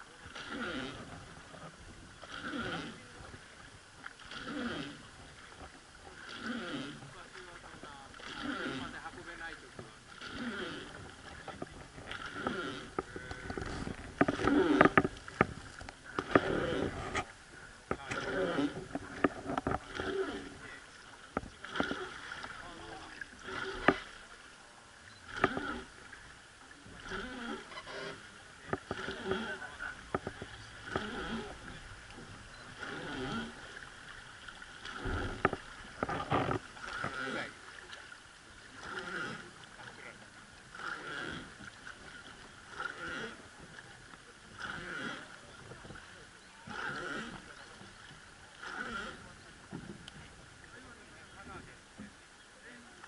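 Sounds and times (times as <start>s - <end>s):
river water rushing along boat: 0.0s - 53.0s
wooden knocks on boat: 49.7s - 50.3s.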